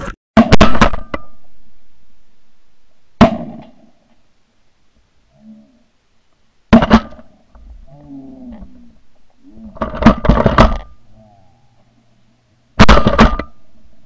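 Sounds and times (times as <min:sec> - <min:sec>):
shotgun blasts: 0:03.2 - 0:03.9, 0:06.7 - 0:07.3, 0:12.8 - 0:13.6.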